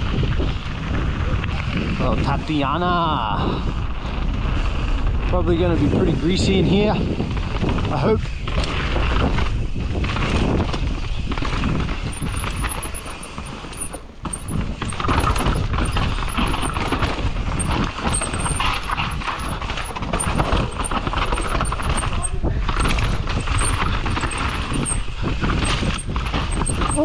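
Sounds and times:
wind rumbling on microphone: 0.0s - 27.0s
bike rattling over rough trail: 6.4s - 27.0s
tyres on dirt: 10.2s - 27.0s.

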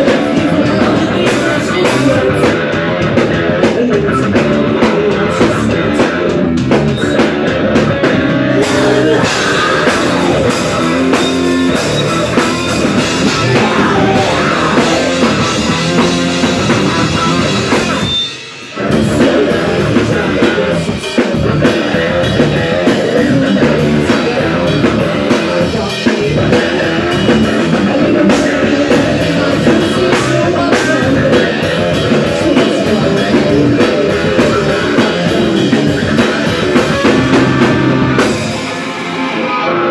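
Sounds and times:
bass guitar: 0.0s - 39.9s
drum kit: 0.0s - 39.9s
electric guitars: 0.0s - 39.9s
woman singing lead: 8.1s - 11.2s, 13.0s - 17.4s.

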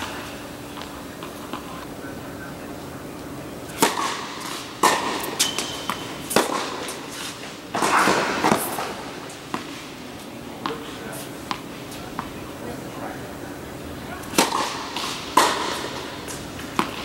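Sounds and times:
tennis ball bouncing on court: 3.7s - 9.8s, 10.6s - 12.4s, 14.3s - 17.0s
tennis ball hitting racket: 3.7s - 9.8s, 10.6s - 12.3s, 14.2s - 17.0s.

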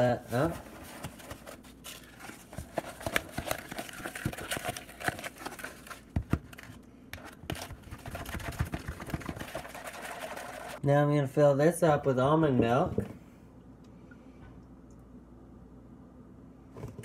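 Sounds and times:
spatula stirring thick batter: 7.1s - 10.8s.

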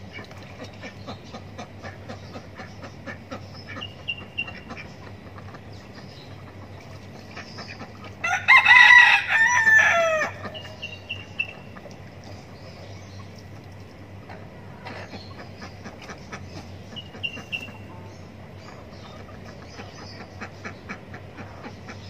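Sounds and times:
hens clucking: 0.0s - 22.0s
rooster crowing: 8.2s - 10.6s.

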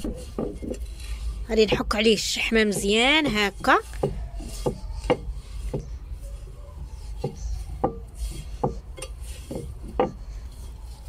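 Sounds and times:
hand rubbing clay pot: 0.0s - 11.0s.

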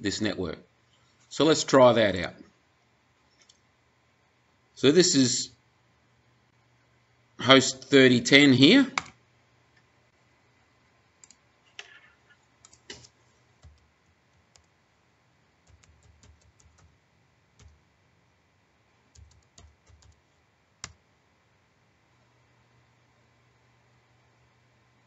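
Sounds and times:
faint keyboard typing: 11.2s - 14.8s, 15.6s - 17.9s, 19.1s - 21.0s.

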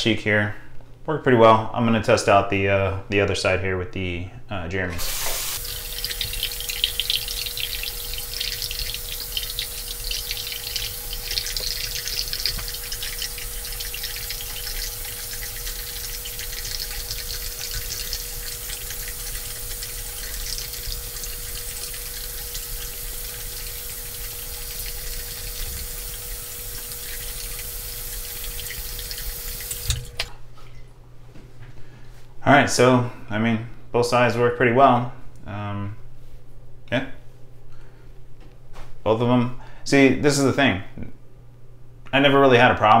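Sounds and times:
faint whine in pipes: 0.0s - 43.0s
tap running into sink: 4.9s - 30.3s.

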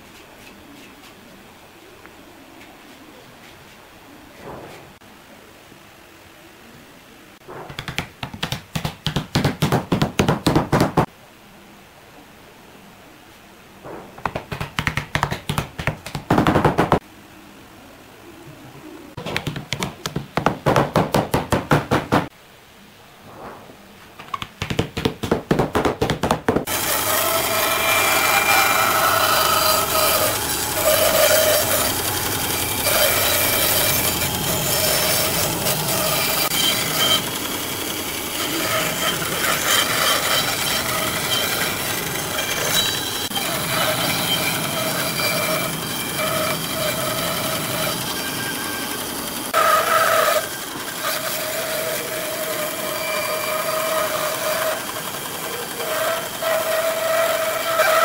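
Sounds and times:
power tool rasping on wood: 26.6s - 58.0s.

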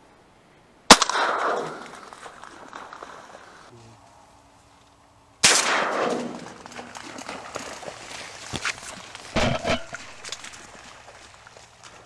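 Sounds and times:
shotgun shots echoing: 0.9s - 3.0s, 5.4s - 6.6s.

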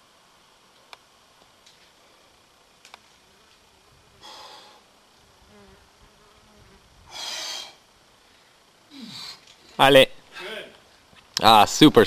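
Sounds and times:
man breathing out sharply: 4.2s - 4.8s, 7.1s - 7.8s.

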